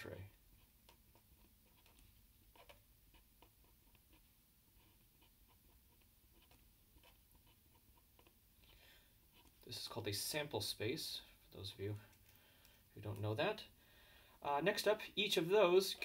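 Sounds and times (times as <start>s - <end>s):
marker scratching on paper: 0.5s - 8.4s, 9.2s - 9.7s.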